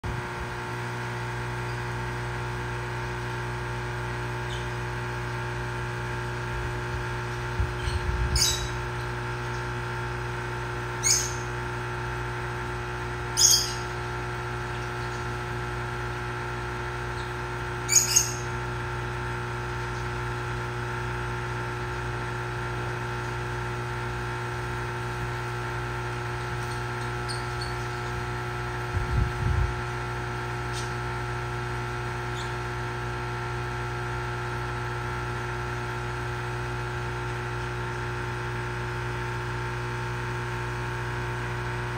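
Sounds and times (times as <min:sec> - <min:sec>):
motor hum: 0:00.0 - 0:41.9
short high bird chirps: 0:07.8 - 0:08.8, 0:11.0 - 0:11.5, 0:13.4 - 0:13.9, 0:17.9 - 0:18.5.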